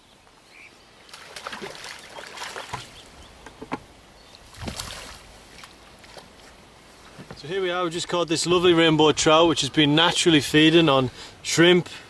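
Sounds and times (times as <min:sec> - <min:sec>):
water splashing around boat: 0:01.0 - 0:08.2.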